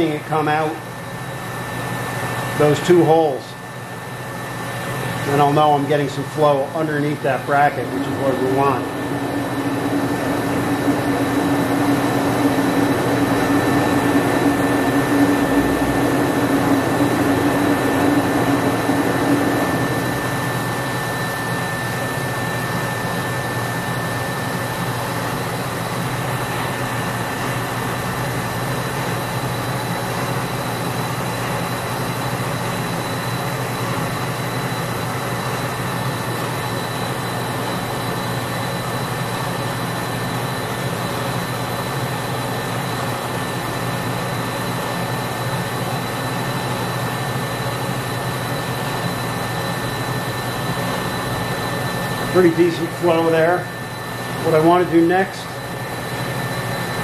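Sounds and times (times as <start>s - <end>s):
gas torch flame rushing: 4.5s - 23.2s
low hum: 6.0s - 21.4s.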